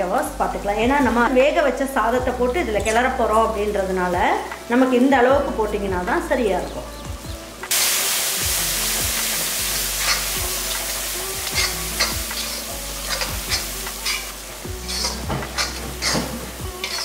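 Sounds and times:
masala sizzling in oil: 0.1 - 17.0
spatula scraping pan: 10.0 - 17.0.

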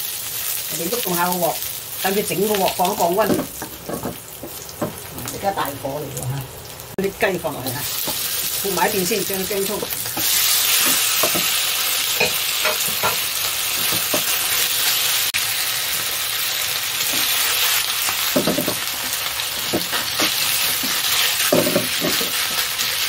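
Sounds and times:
chicken sizzling in oil: 0.0 - 23.0
spatula scraping pan: 18.3 - 22.7.

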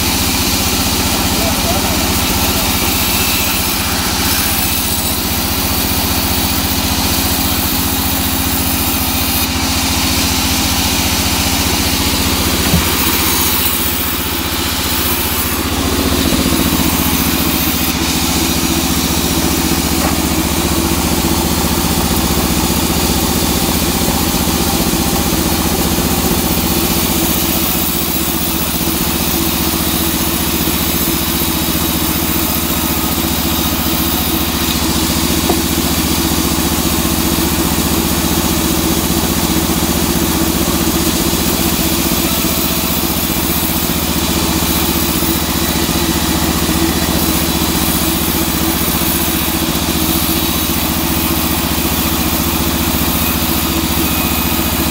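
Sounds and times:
band saw cutting log: 0.0 - 54.9
sharp knock: 12.6 - 13.5.

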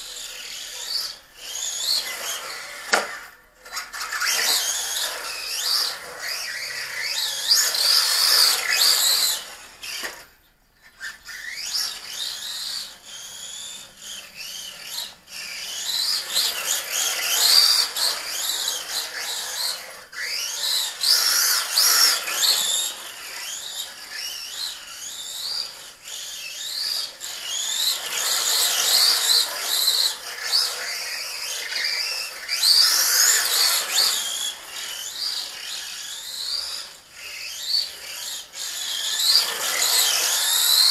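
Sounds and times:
gear and tyre noise: 0.0 - 40.9
electric motor whining: 11.3 - 40.9.

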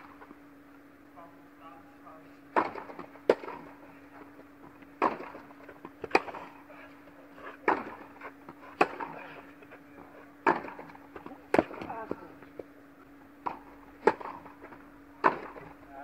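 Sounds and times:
steady low hum: 0.0 - 16.0
racket hitting tennis ball: 2.5 - 6.7, 7.6 - 12.3, 13.4 - 15.8
ball bouncing: 4.3 - 6.4.

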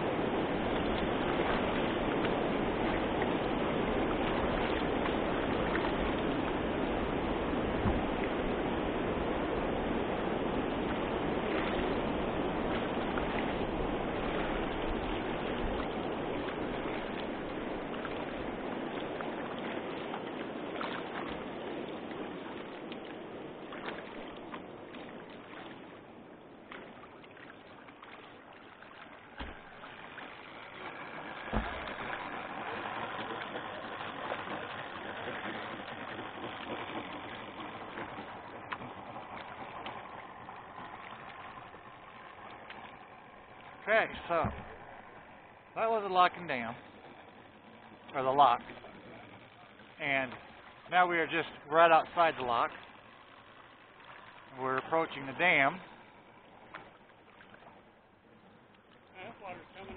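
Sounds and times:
river water flowing: 0.0 - 59.9
sharp knocks: 29.4 - 29.7, 31.5 - 32.0, 44.4 - 44.8.

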